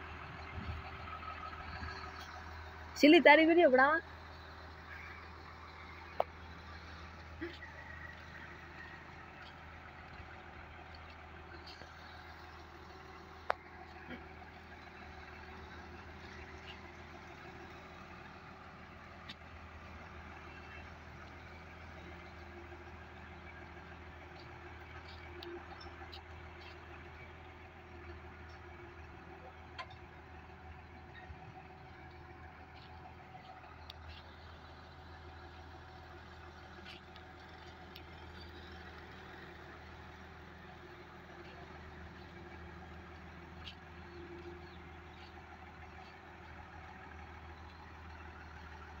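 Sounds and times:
truck engine humming: 0.0 - 49.0
faint clicks: 36.7 - 38.5.

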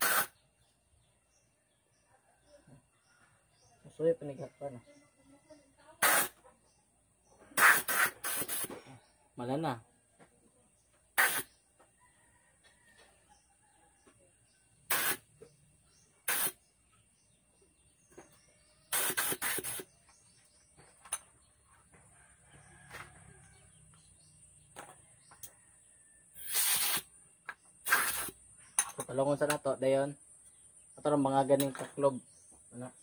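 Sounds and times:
compressed air hissing: 0.0 - 0.4, 6.0 - 6.4, 7.5 - 9.0, 11.2 - 11.6, 14.9 - 15.3, 16.2 - 16.6, 18.8 - 20.0, 26.4 - 27.2, 27.8 - 28.6
faint bird chirps: 0.0 - 33.0.

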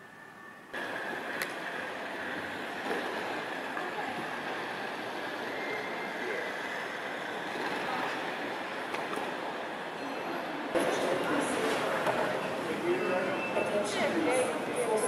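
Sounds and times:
faint steady high tone: 0.0 - 0.9, 9.9 - 10.7.

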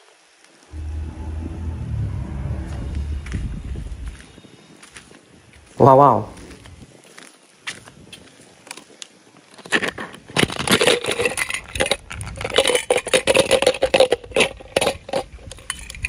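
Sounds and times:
toy cars clattering onto concrete: 9.6 - 16.0
toy cars rattling in plastic capsule: 9.8 - 16.0.

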